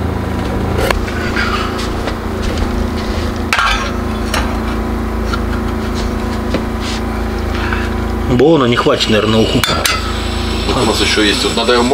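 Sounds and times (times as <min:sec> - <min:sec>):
generator engine humming: 0:00.0 - 0:11.9
pot on gas stove: 0:09.0 - 0:11.9.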